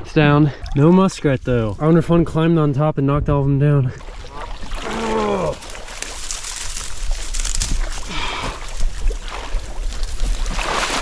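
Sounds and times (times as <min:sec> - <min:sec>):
marsh water sloshing: 0:03.9 - 0:11.0
dry stems crackling: 0:04.7 - 0:10.5.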